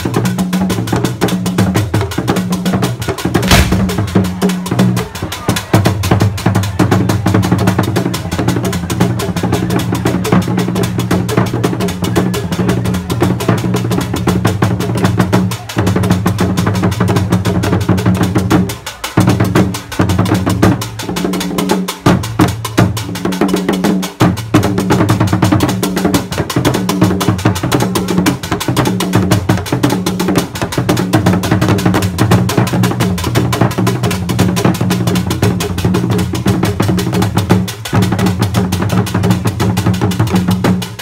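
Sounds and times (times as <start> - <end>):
fast stick strokes: 3.4 - 4.2
drum ensemble playing: 3.4 - 4.8
deep ringing drum tones: 3.5 - 4.4.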